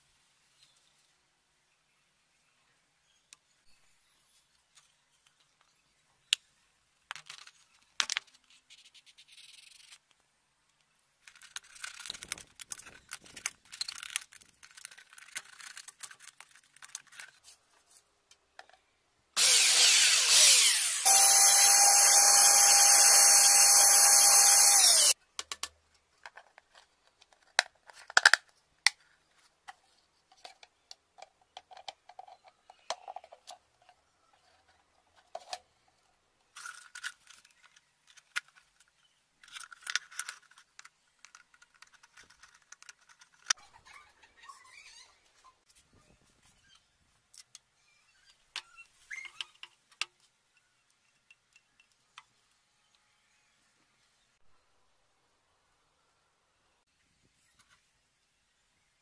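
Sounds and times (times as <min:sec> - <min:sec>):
small electric drill drilling plastic: 0:19.4 - 0:25.2.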